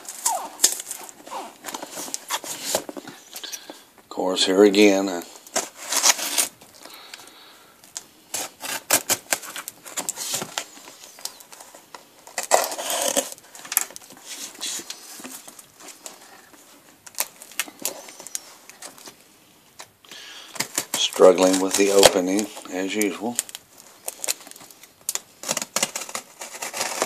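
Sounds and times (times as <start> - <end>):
cardboard scraping and rustling: 0.0 - 3.4, 5.5 - 6.6, 8.3 - 19.2, 25.4 - 27.0.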